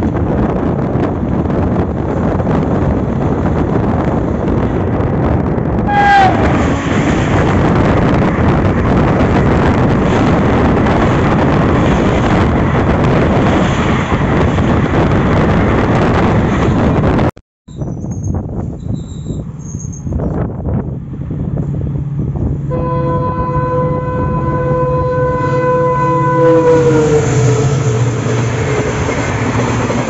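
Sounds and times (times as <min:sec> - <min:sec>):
moving train running noise: 0:00.0 - 0:30.0
train coaches rushing past: 0:00.2 - 0:17.2, 0:24.5 - 0:30.0
locomotive horn blast: 0:05.8 - 0:08.2, 0:22.7 - 0:28.5.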